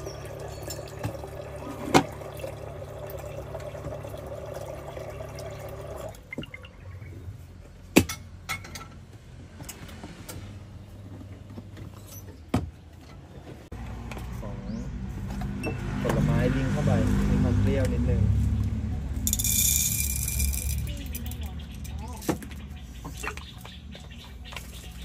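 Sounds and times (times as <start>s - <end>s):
tap water running into kettle: 0.0s - 6.5s.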